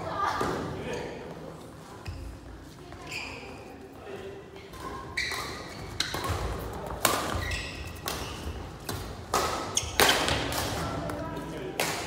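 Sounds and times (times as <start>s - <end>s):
sneakers squeaking on court: 2.0s - 3.8s, 4.8s - 10.4s
rackets hitting shuttlecock: 5.2s - 11.2s.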